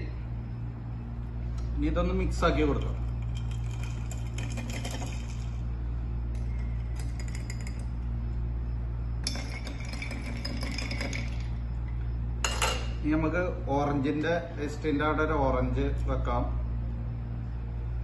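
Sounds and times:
steady low hum: 0:00.0 - 0:18.0
ice and spoon clinking glass: 0:09.2 - 0:11.5.

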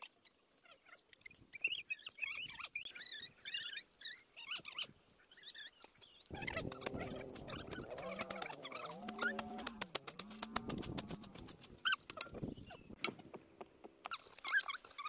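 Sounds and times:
chicks peeping: 0:06.3 - 0:11.3
lower steady pitched call: 0:06.3 - 0:11.5.

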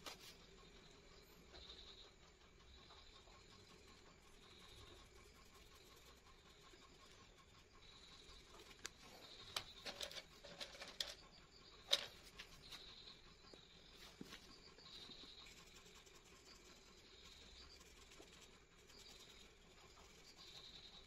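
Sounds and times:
pencils clicking and tapping: 0:08.6 - 0:11.2, 0:11.8 - 0:12.8.

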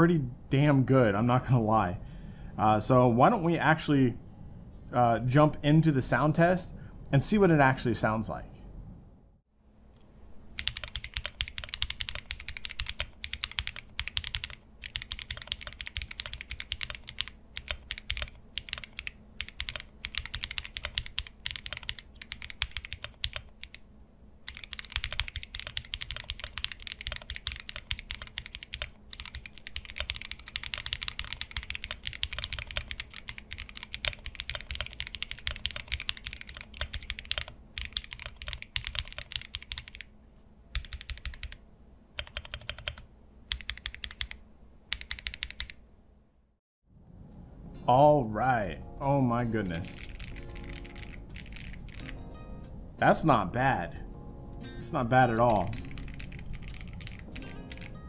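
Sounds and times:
mechanical keyboard typing: 0:10.6 - 0:23.8, 0:24.5 - 0:40.1, 0:40.7 - 0:41.6, 0:42.2 - 0:45.8, 0:49.9 - 0:52.2, 0:55.3 - 0:58.0.

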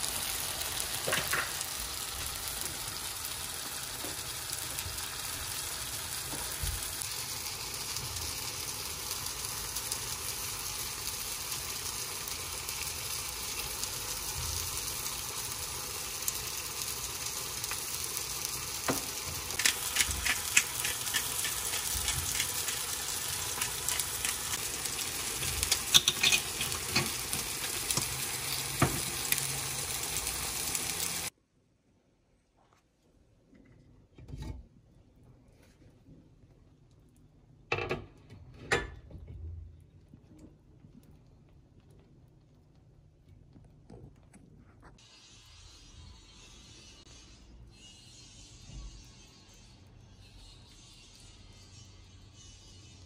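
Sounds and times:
eggs sizzling in a pan: 0:00.0 - 0:31.4, 0:36.3 - 0:43.9, 0:44.8 - 0:53.0
pepper grinder clicking: 0:19.6 - 0:24.6.

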